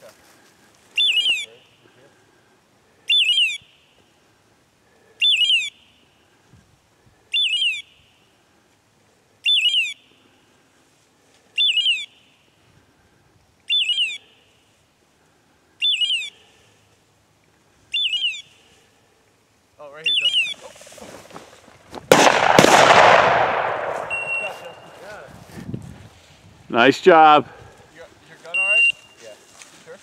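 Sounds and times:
beeper collar chirps: 0:01.0 - 0:01.8, 0:03.1 - 0:04.0, 0:05.2 - 0:06.0, 0:07.3 - 0:08.3, 0:09.4 - 0:10.2, 0:11.6 - 0:12.4, 0:13.7 - 0:14.6, 0:15.8 - 0:16.5, 0:17.9 - 0:18.7, 0:20.0 - 0:20.7, 0:24.0 - 0:25.2, 0:28.5 - 0:29.2.

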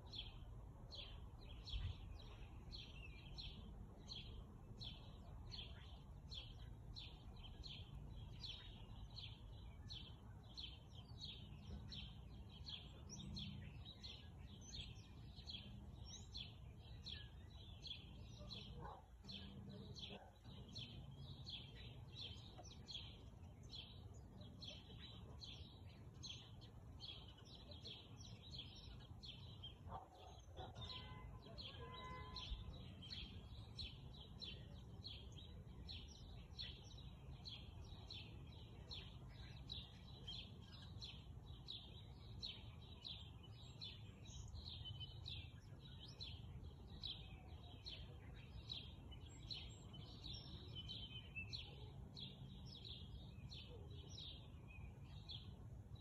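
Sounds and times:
faint birdsong chirps: 0:00.0 - 0:56.0.

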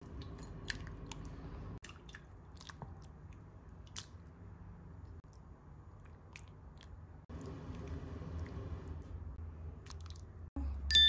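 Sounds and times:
wet slopping of stew: 0:00.0 - 0:04.3.

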